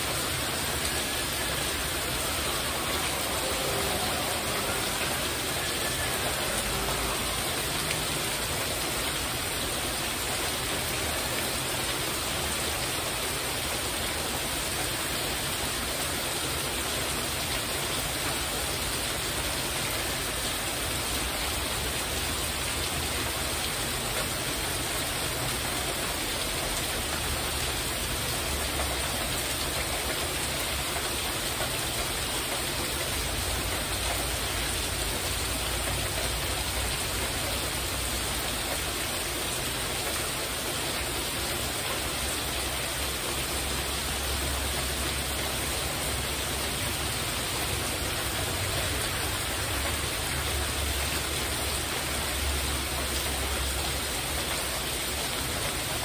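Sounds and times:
heavy rain on a roof: 0:00.0 - 0:56.0.

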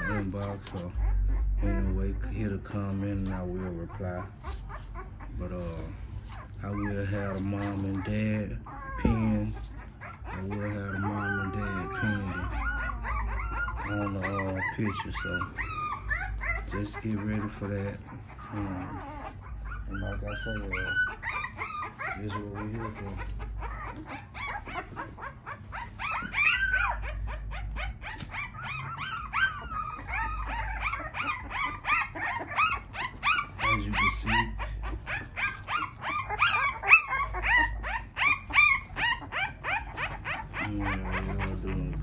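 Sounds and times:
puppies crying: 0:00.0 - 0:42.0.

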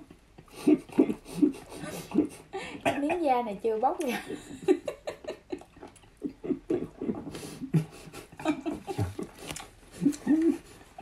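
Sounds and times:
noodles slurped and chewed: 0:08.9 - 0:11.0
wet mouth clicks and lip smacks: 0:09.2 - 0:10.3.

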